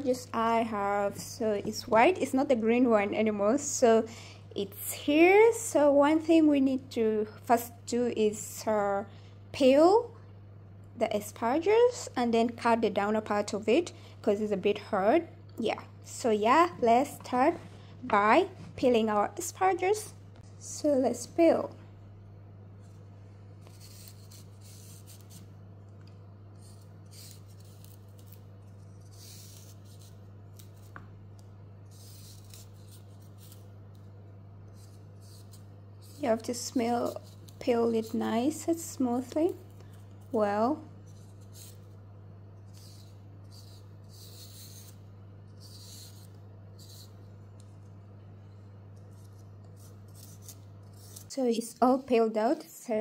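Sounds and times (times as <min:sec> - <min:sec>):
steady low hum: 0:00.0 - 0:53.0
peeler scraping asparagus: 0:23.6 - 0:25.5, 0:26.6 - 0:30.9, 0:31.9 - 0:34.0, 0:34.7 - 0:42.0, 0:42.6 - 0:47.7, 0:49.0 - 0:52.4.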